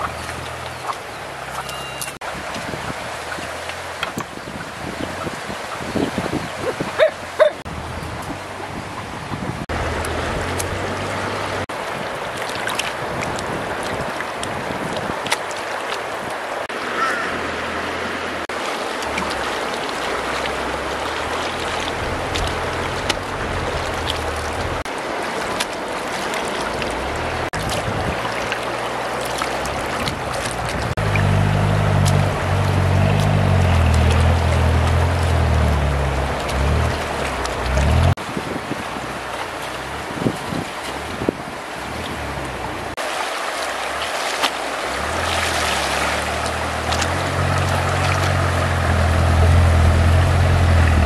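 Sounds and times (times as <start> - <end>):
river water over stones: 0.0 - 51.0
hands splashing in water: 43.0 - 49.2.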